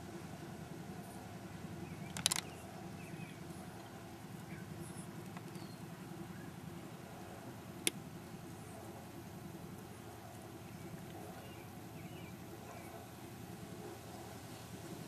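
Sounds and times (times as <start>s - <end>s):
low outdoor hum: 0.0s - 15.0s.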